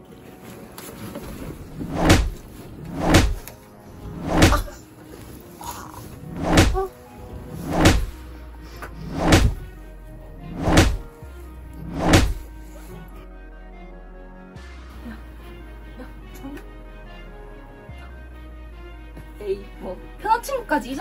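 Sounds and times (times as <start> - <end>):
background music: 0.0 - 21.0
dull thuds of blows: 1.8 - 3.5, 4.1 - 4.7, 6.3 - 6.9, 7.6 - 8.2, 9.1 - 9.7, 10.5 - 11.1, 11.9 - 12.5.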